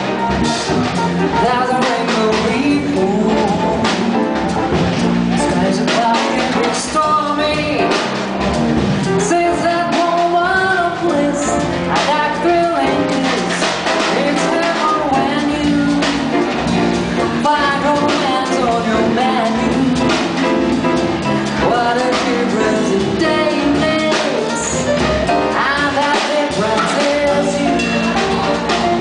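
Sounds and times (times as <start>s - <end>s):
drum kit: 0.0s - 29.0s
electric bass: 0.0s - 29.0s
saxophone melody: 24.4s - 25.6s.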